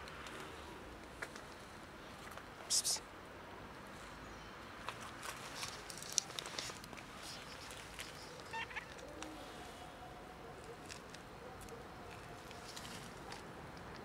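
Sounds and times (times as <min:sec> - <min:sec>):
footsteps on dry leaves and gravel: 0:04.9 - 0:08.9
cat meow: 0:08.5 - 0:08.9.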